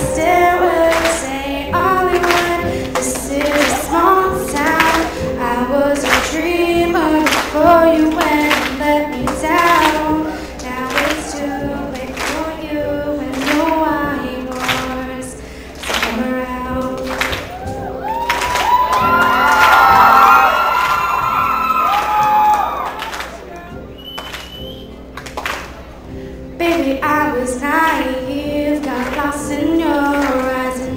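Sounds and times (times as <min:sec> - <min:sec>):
woman singing a slow ballad: 0:00.0 - 0:18.6, 0:26.6 - 0:30.9.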